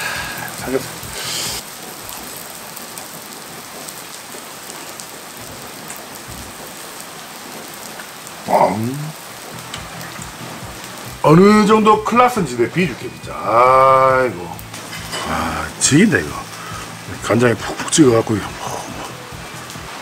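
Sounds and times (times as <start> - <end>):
person exclaiming: 8.4 - 9.2, 11.2 - 14.6, 15.2 - 15.8
pancake sizzling in oil: 14.1 - 17.0.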